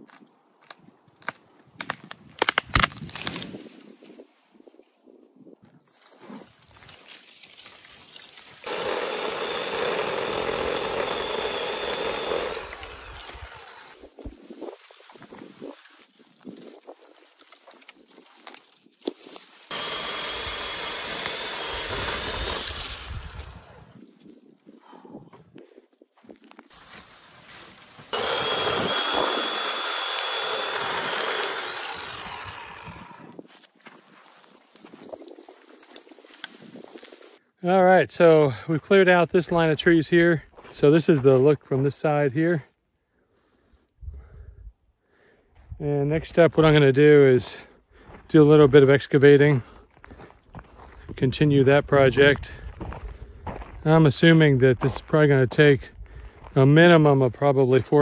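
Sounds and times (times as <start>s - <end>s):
electric chainsaw cutting wood: 8.3s - 14.2s, 19.7s - 24.0s, 26.8s - 33.4s.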